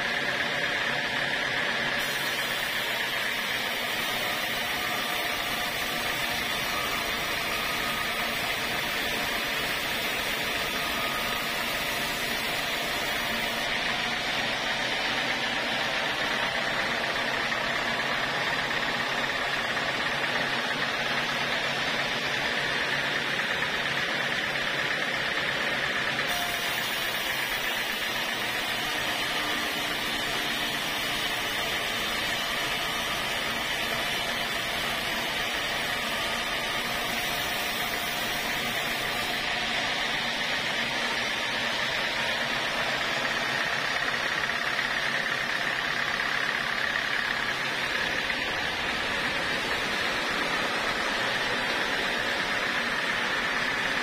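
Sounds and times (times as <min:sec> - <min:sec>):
band saw cutting wood: 0:01.9 - 0:54.0.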